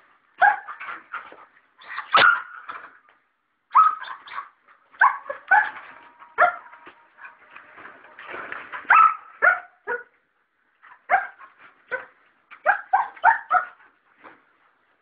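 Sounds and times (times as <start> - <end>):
dog barking: 2.1 - 2.6, 3.7 - 6.7, 8.9 - 10.1, 11.1 - 13.8.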